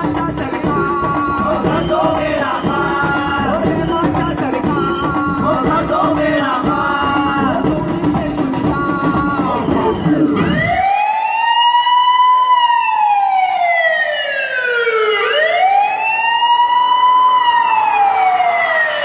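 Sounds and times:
wailing siren effect: 9.1 - 19.0.

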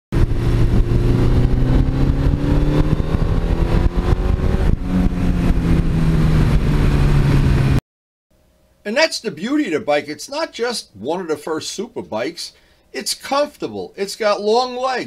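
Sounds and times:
motorcycle engine running: 0.2 - 7.8
wind noise: 0.2 - 7.8.

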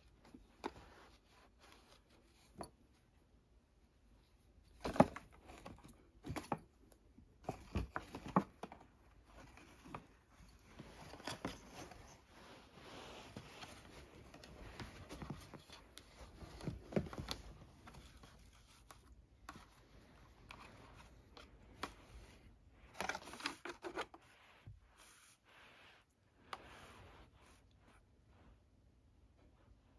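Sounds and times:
cat paws rustling on cardboard: 4.6 - 28.3.

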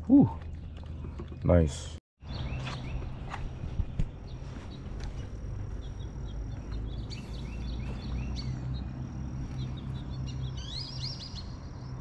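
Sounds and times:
small birds chirping: 0.0 - 12.0
steady low rumble: 3.0 - 10.6.

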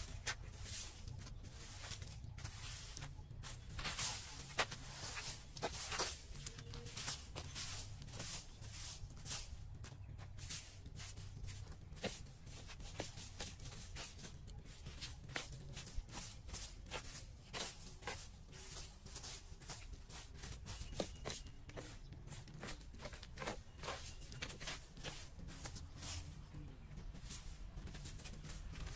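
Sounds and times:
broom sweeping grit on paving: 0.0 - 28.9.

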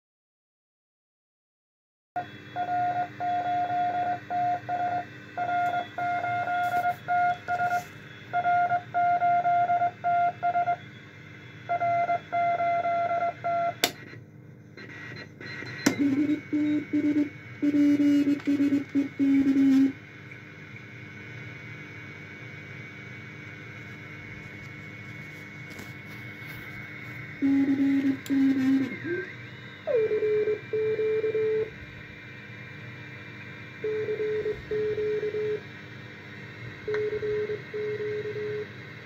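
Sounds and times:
radio receiver hiss and hum: 2.2 - 39.0
morse code beat tone: 2.5 - 10.8, 14.8 - 20.0, 27.4 - 29.3.

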